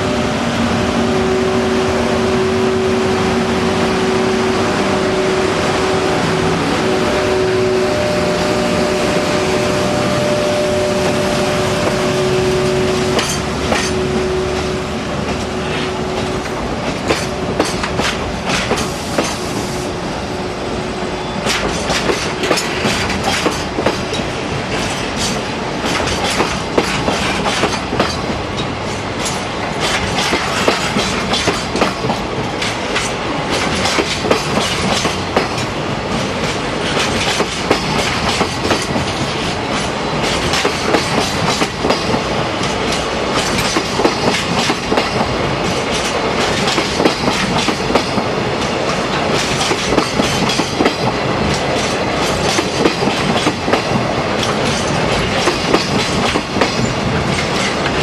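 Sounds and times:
electric locomotive humming: 0.0 - 58.0
train wheels clacking over rail joints: 12.9 - 19.8, 21.4 - 58.0.

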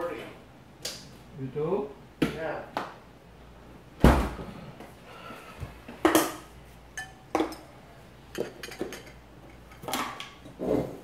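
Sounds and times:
spoon clinking on ceramic bowl: 7.0 - 7.6.

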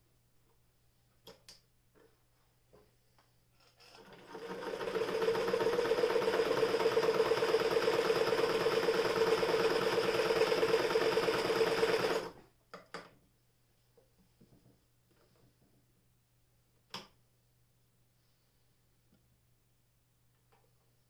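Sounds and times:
electric sewing machine stitching: 3.8 - 12.4.

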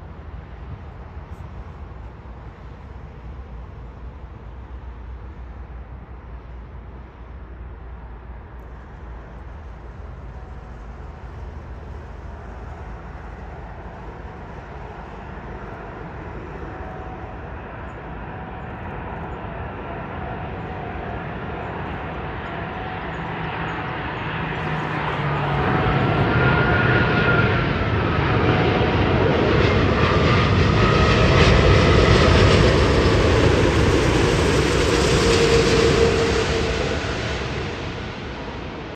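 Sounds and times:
jet aircraft noise: 0.0 - 38.9
whining engine tones: 8.8 - 30.5.

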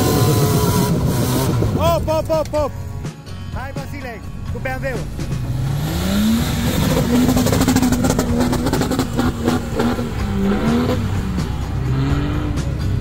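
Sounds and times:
off-road engine revving hard: 0.0 - 2.1, 5.1 - 13.0.

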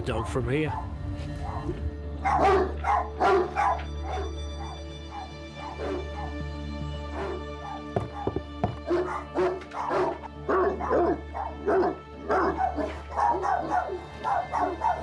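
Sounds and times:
background music: 0.0 - 15.0
dog barking: 0.2 - 6.4, 7.1 - 15.0
knock on door: 7.9 - 8.9.

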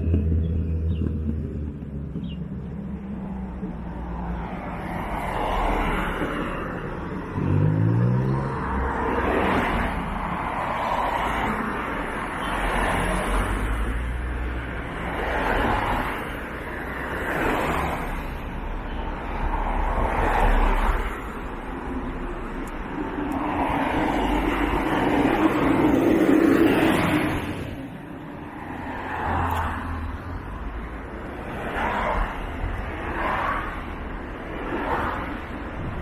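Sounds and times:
cars passing: 0.0 - 36.0
low traffic rumble: 0.0 - 36.0
engine revving: 7.3 - 8.9.

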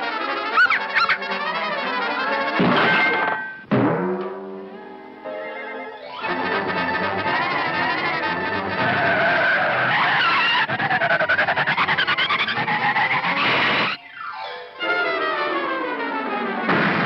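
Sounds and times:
fast cartoon pattering: 0.4 - 1.6, 6.9 - 14.0
cartoon screech with wavering whine: 0.6 - 1.2, 8.8 - 14.1.

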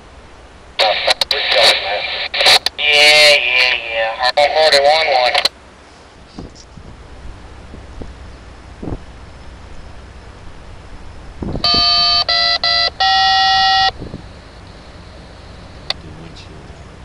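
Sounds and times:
touch-tone beeps over radio: 0.8 - 5.5, 11.6 - 14.0.

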